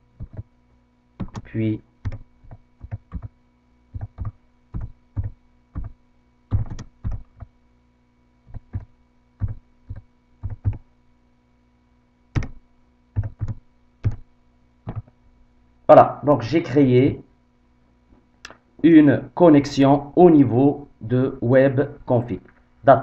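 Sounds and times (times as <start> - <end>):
faint electrical hum: 0.0 - 23.0
keyboard keystrokes: 0.2 - 0.5, 1.2 - 3.3, 4.0 - 7.5, 8.5 - 10.8, 12.4 - 12.6, 13.2 - 14.2, 14.9 - 15.1.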